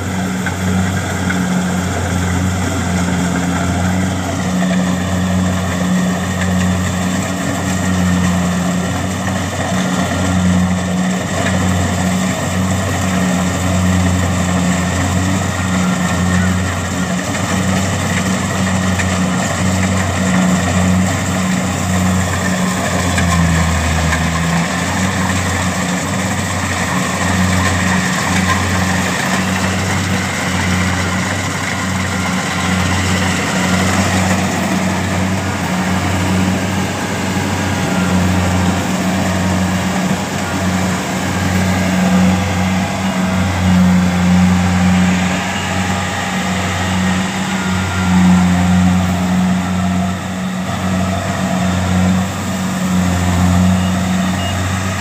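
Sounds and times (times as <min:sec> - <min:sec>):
diesel engine humming: 0:00.0 - 0:55.0.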